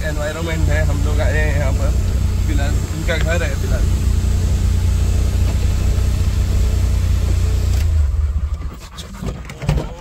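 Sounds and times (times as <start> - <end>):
engine and road rumble: 0.0 - 10.0.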